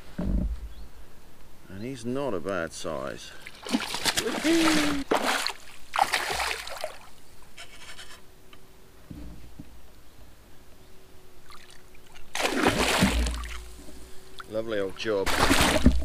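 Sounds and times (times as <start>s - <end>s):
fish splashing water: 3.4s - 7.1s, 11.5s - 13.8s, 15.3s - 16.0s.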